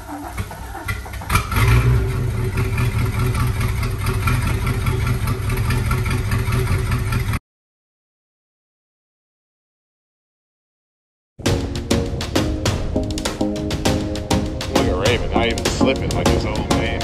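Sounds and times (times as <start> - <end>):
boat engine rumbling: 0.0 - 7.4, 11.6 - 17.0.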